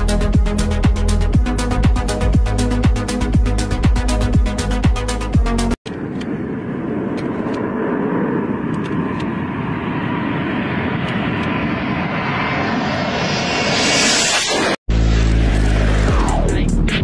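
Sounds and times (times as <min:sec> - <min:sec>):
electronic dance music: 0:00.0 - 0:05.8
jet flying low: 0:00.0 - 0:17.0.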